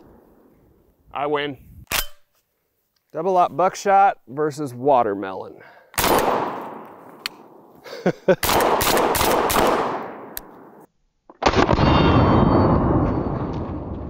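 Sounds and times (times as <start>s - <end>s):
shotgun shots: 6.0s - 7.6s, 8.4s - 12.4s.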